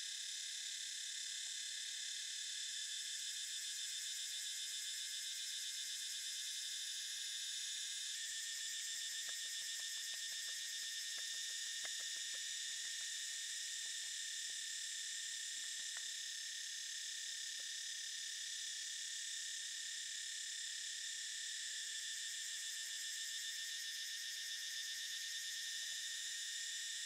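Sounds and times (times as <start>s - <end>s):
insects trilling: 2.8s - 19.5s, 21.8s - 27.0s
faint small ticks: 8.7s - 16.8s, 17.4s - 18.0s.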